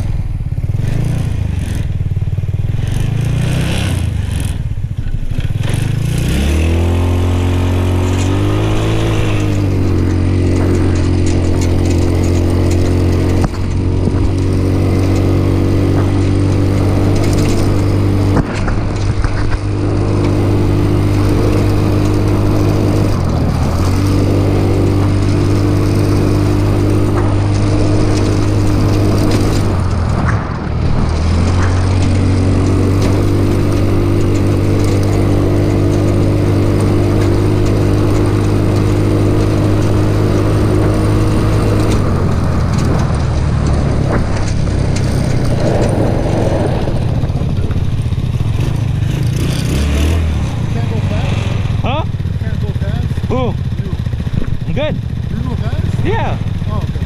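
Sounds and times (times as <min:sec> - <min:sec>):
go-kart engine running: 0:00.0 - 0:57.0
rush of tyres and wind: 0:00.0 - 0:57.0.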